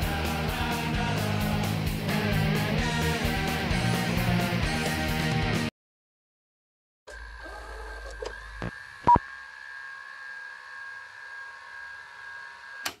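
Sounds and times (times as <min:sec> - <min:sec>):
electronic hum of held tones: 0:07.1 - 0:13.0.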